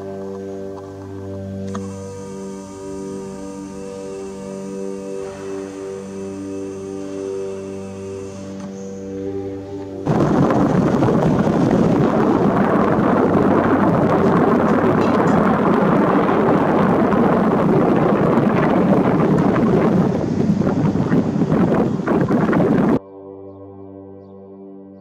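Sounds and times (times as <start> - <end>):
wind buffeting microphone: 10.0 - 23.0.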